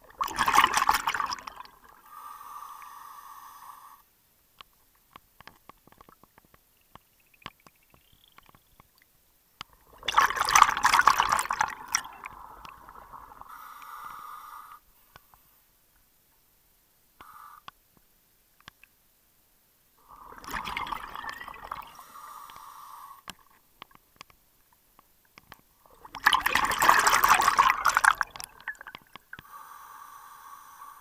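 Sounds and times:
burst of exhaled bubbles: 0:00.0 - 0:02.0, 0:09.8 - 0:13.5, 0:20.1 - 0:21.9, 0:25.9 - 0:29.1
small bubble clicks: 0:00.0 - 0:02.0, 0:05.4 - 0:13.5, 0:20.2 - 0:21.9, 0:25.2 - 0:29.5
regulator inhalation hiss: 0:29.4 - 0:31.0.

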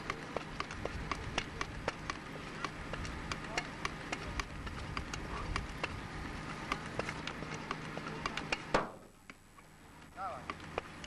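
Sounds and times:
hydraulic cutter running: 0:00.0 - 0:11.0
loud crack: 0:08.3 - 0:09.2.

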